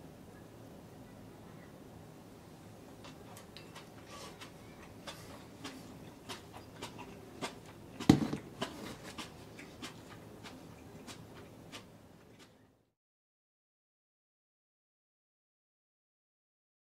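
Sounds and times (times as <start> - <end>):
faint low hum: 0.0 - 12.9
loud knock: 8.1 - 8.4.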